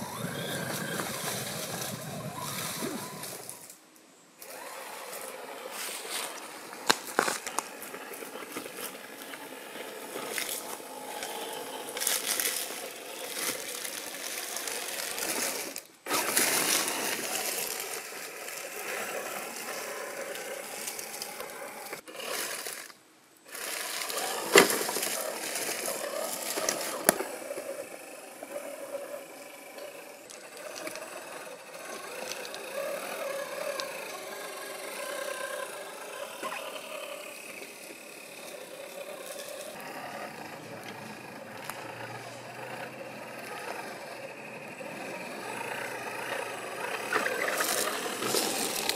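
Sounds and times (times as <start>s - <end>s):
electric motor and gears whirring: 0.0s - 48.9s.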